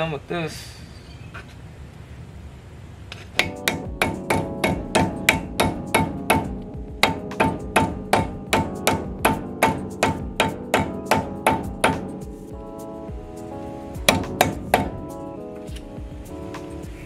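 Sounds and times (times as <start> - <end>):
hammer striking metal: 3.4 - 12.2, 14.1 - 15.0.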